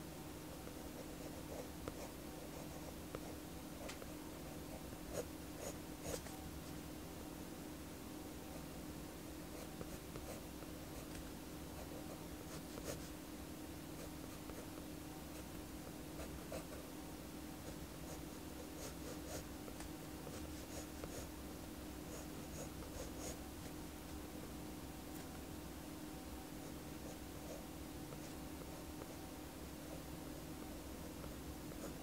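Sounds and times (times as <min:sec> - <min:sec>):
faint steady hum: 0:00.0 - 0:32.0
pencil scratching on paper: 0:20.2 - 0:21.3.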